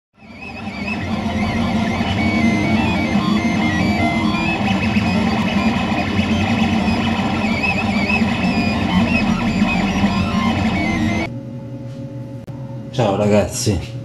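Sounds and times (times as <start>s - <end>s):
intro music with guitar: 0.2s - 11.3s
steady hum: 0.2s - 14.0s.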